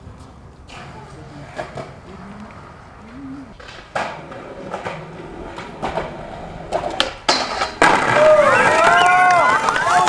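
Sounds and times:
skateboard wheels rolling on concrete: 0.0 - 10.0
skateboard clacks and knocks: 3.6 - 10.0.

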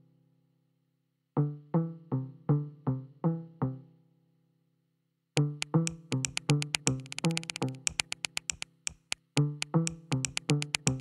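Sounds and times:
electronic music with drum-machine beat: 5.4 - 11.0.

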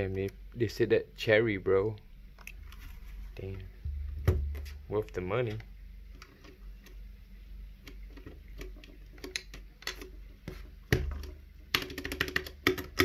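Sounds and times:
plastic keycap clicks and taps: 10.9 - 13.0.

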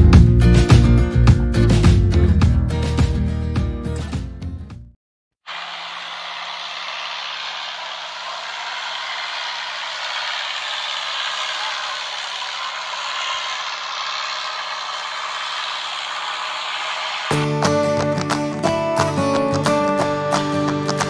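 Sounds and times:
outdoor hiss: 5.4 - 17.4.

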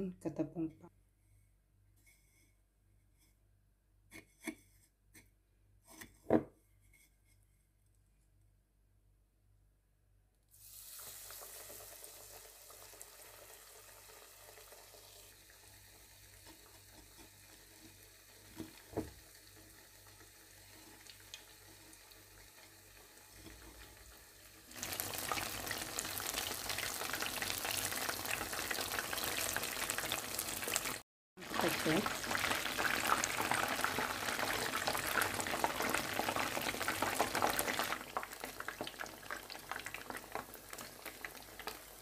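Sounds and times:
chicken frying in hot oil: 10.5 - 42.0.

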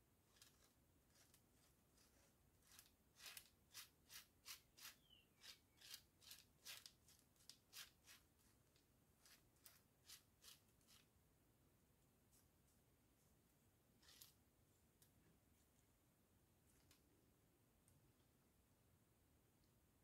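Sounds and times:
knife scraping paste on card: 0.3 - 8.3.

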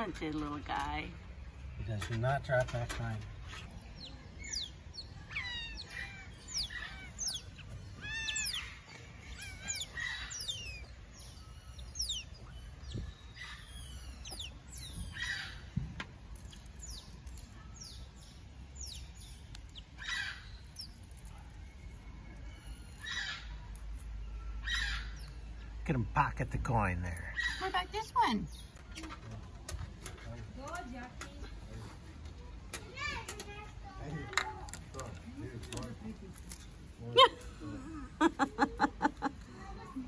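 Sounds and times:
otters chirping: 0.0 - 29.2
harsh otter squeals: 5.3 - 8.7.

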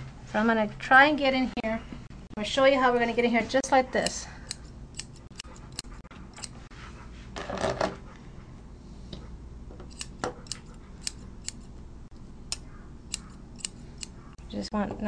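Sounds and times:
shears snipping: 12.5 - 14.3.

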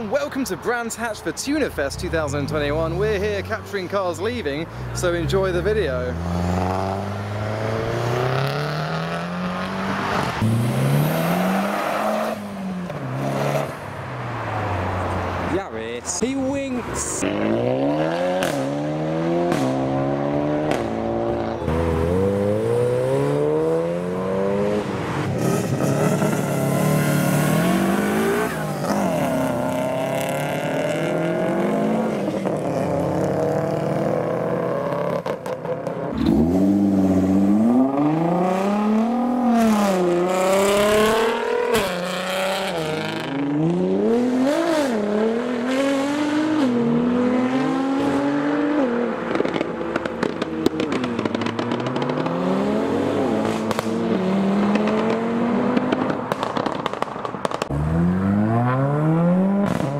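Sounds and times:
car engines revving and accelerating: 0.0 - 59.9
exhaust pops and crackles: 49.3 - 52.4, 53.4 - 54.0, 54.7 - 57.8.

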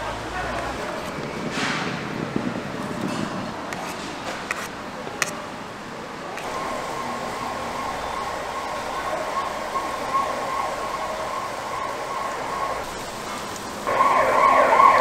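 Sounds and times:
busy market noise: 0.0 - 15.0
thin steady high tone: 6.4 - 15.0.

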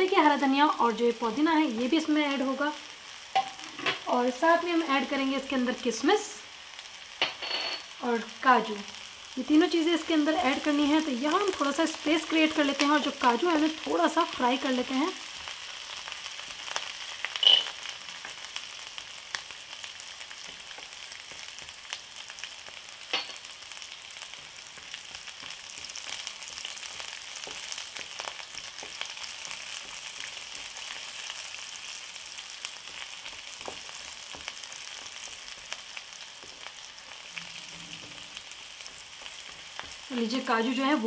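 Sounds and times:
food sizzling in oil: 0.0 - 41.0
metal bowl clink: 7.2 - 7.9.

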